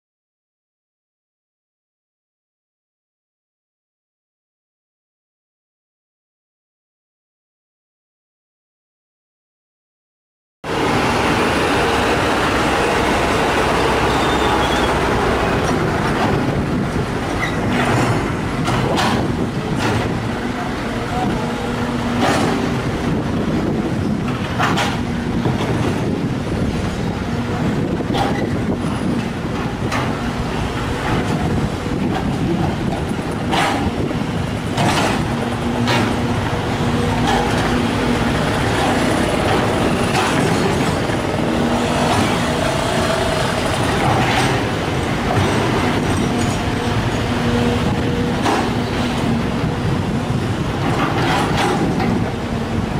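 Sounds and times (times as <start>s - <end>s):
excavator diesel engine running: 10.7s - 52.9s.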